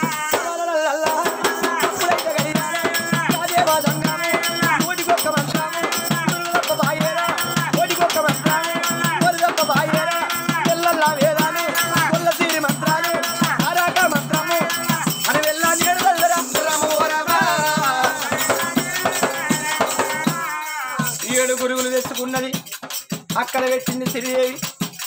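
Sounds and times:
jingling rattle beat: 0.0 - 25.0.

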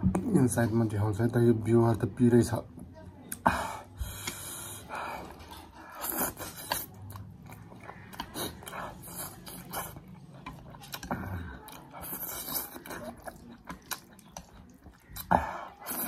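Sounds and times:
noodles being slurped: 5.7 - 16.0.

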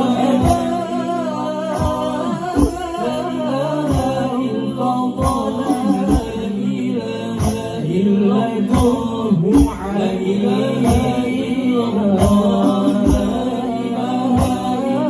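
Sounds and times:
men singing into microphones: 0.0 - 15.0
frame drums struck: 8.7 - 10.2, 12.2 - 13.6.

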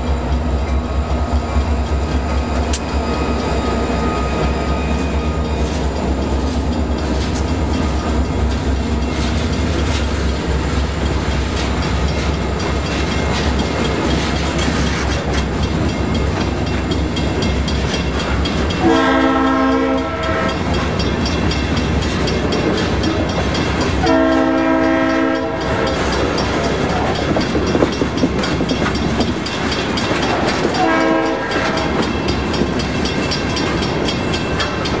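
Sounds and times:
passing train noise: 0.0 - 35.0
wheels clicking on rail joints: 0.0 - 35.0
train horn blasts: 18.8 - 20.7, 24.0 - 26.1, 30.7 - 32.0.

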